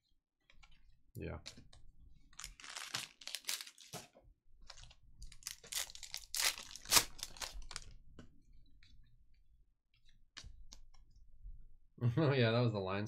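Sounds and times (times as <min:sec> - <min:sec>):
foil wrapper crinkling and tearing: 0:02.4 - 0:04.0, 0:04.7 - 0:07.9.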